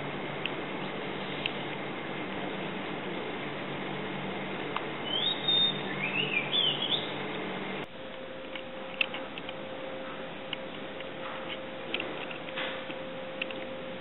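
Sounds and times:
faint steady hum: 0.0s - 14.0s
bird chirping: 5.0s - 7.2s.

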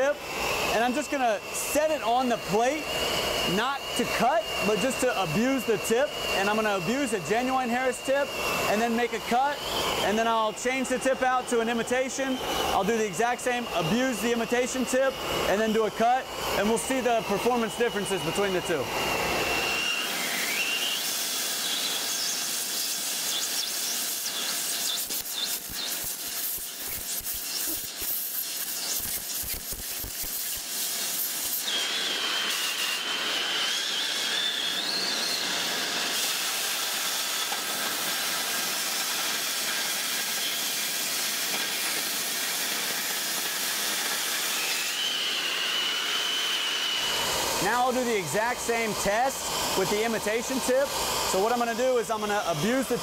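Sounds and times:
cutting torch hissing: 0.0s - 53.0s.

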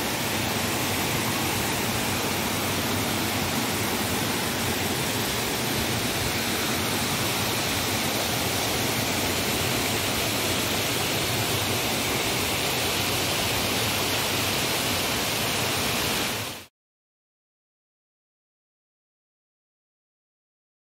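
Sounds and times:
stream rushing over rocks: 0.0s - 16.7s.

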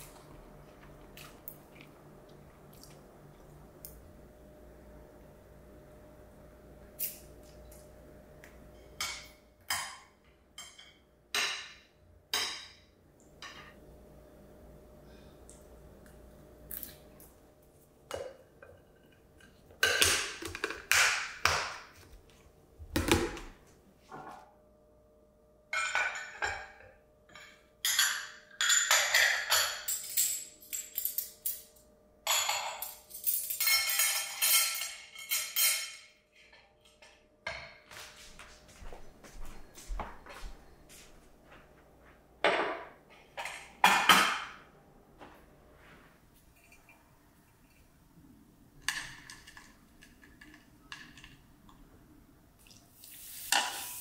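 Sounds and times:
ceramic dishes clinking: 25.7s - 30.9s, 32.3s - 36.0s.

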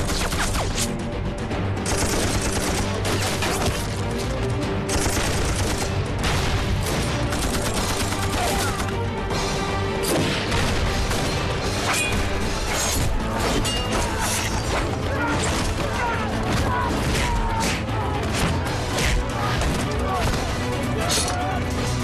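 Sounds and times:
rapid gunfire: 0.0s - 0.8s, 1.8s - 3.9s, 4.9s - 8.9s
background music: 0.0s - 22.0s.

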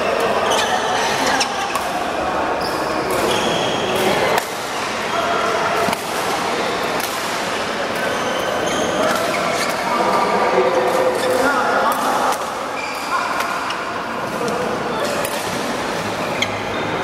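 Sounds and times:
shoes squeaking on floor: 0.0s - 1.8s, 2.6s - 4.0s, 8.0s - 9.9s, 12.8s - 13.3s
voices: 0.0s - 17.0s
rackets striking shuttlecock: 5.8s - 8.1s.

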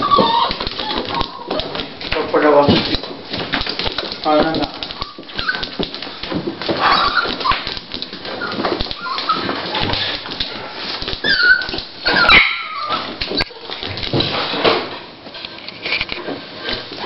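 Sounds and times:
dog whimpering: 0.0s - 1.9s, 4.8s - 5.9s, 6.8s - 10.2s, 11.2s - 13.8s.

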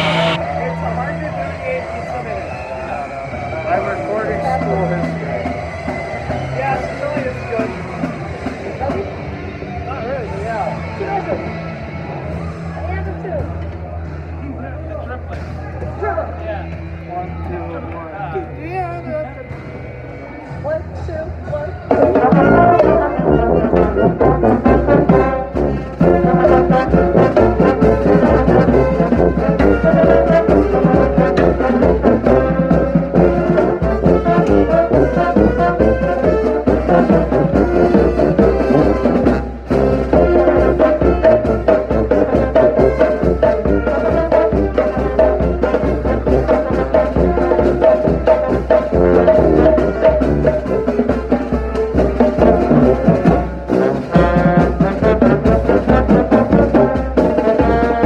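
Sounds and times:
tuba: 0.0s - 0.4s, 21.8s - 58.0s
brass band playing a march: 0.0s - 1.1s, 2.1s - 9.0s, 21.9s - 58.0s.

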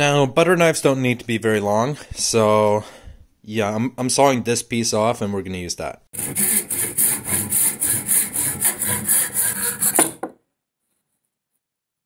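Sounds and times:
hand saw cutting wood: 6.2s - 10.3s.

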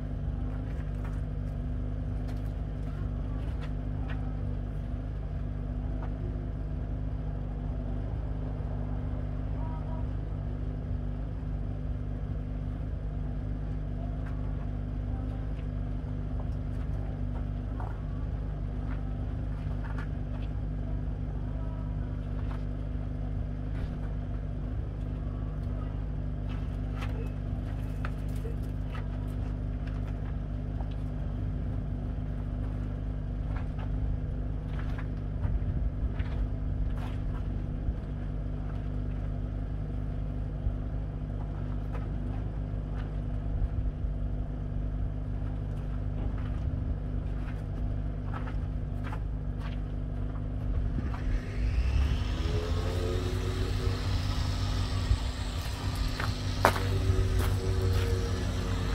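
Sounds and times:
low machine hum: 0.0s - 58.9s.

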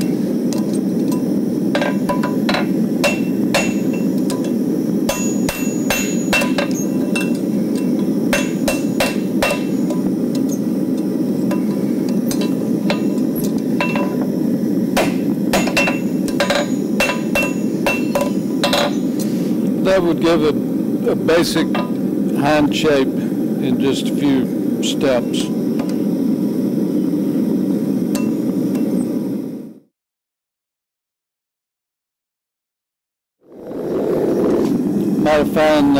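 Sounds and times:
hammer striking horseshoe on anvil: 1.8s - 10.6s, 11.5s - 13.2s, 13.8s - 14.3s, 15.0s - 19.0s.

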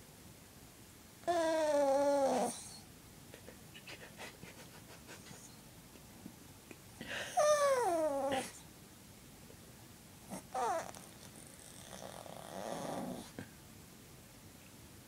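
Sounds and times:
dog whining: 1.2s - 2.8s, 7.3s - 8.6s, 10.3s - 13.3s.

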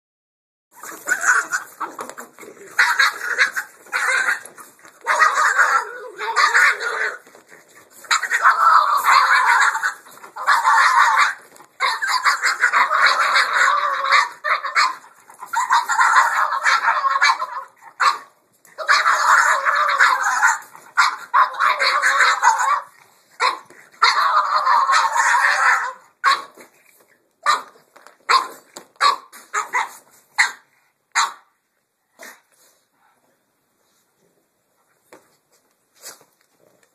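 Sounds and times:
dogs barking: 2.7s - 7.2s, 8.0s - 26.6s, 27.4s - 31.5s.

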